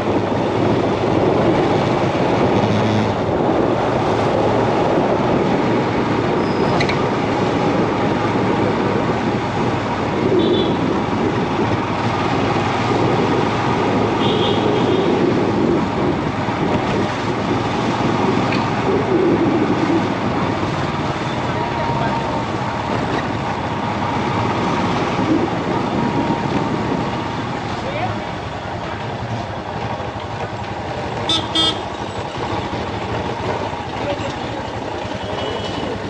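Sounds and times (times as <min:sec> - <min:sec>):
road and wind rumble: 0:00.0 - 0:36.0.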